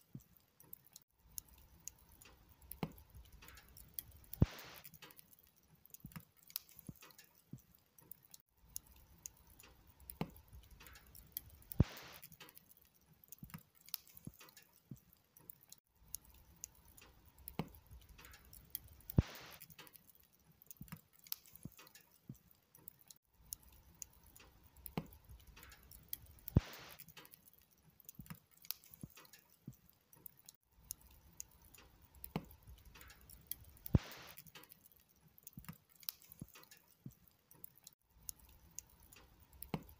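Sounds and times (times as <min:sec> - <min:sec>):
wood fire crackling: 0:00.0 - 0:39.9.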